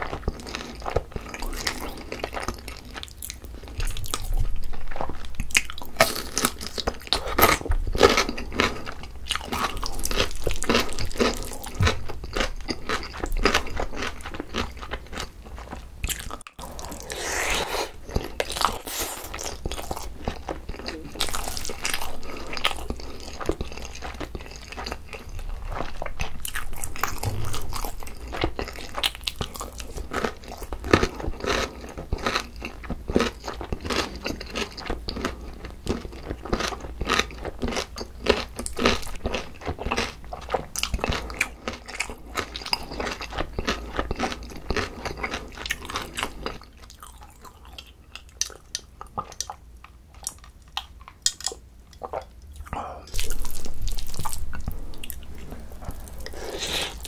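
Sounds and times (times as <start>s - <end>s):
wet chewing: 50.2s - 57.0s.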